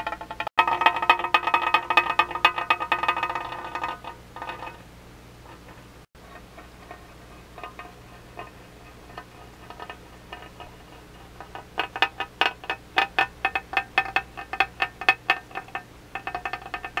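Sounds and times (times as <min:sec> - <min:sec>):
rocking glass clinking: 0:06.2 - 0:17.0.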